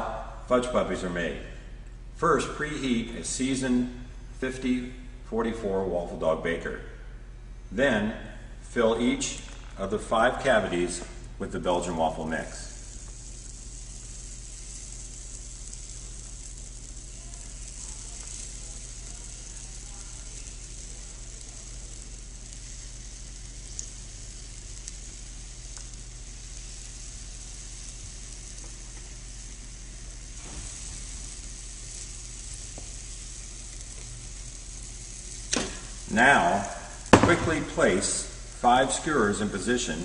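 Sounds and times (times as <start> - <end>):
low electrical hum: 0.0 - 40.0
batter sizzling: 8.6 - 40.0.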